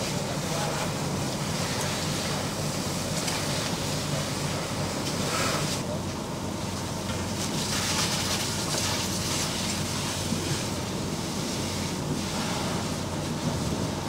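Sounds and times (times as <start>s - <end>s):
water spray hissing on fire: 0.0s - 6.0s, 6.6s - 14.0s.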